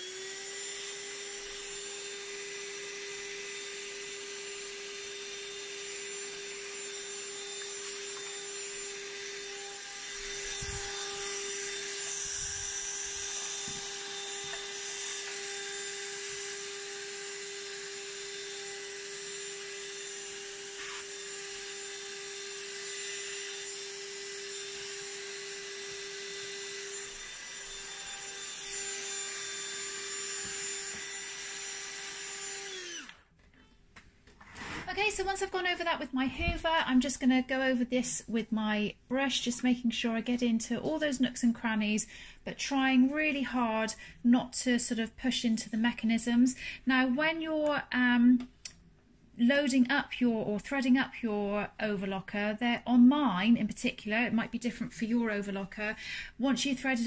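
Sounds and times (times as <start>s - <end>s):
handheld vacuum cleaner whine: 0.0s - 33.3s.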